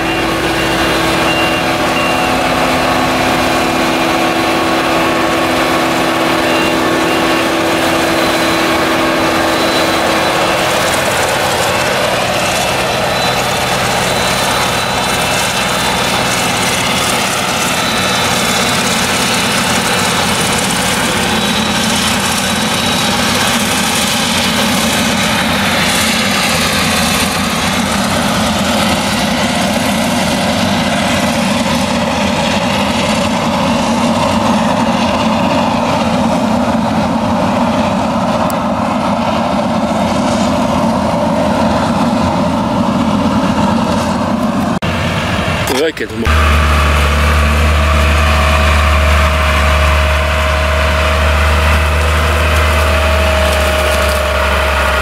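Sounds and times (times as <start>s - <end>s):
harvester engine under load: 0.0s - 55.0s
high mechanical whine: 0.0s - 55.0s.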